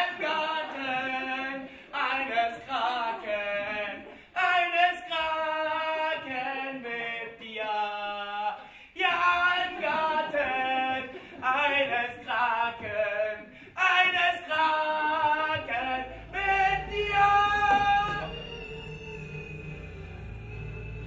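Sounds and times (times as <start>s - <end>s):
voices singing unaccompanied: 0.0s - 21.0s
low steady hum: 15.1s - 21.0s.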